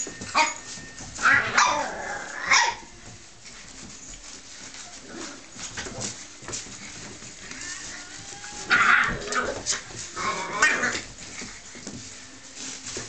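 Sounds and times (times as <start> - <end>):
soft scuffling: 0.0 - 13.0
puppy whining yelps: 0.3 - 2.8, 8.3 - 11.0.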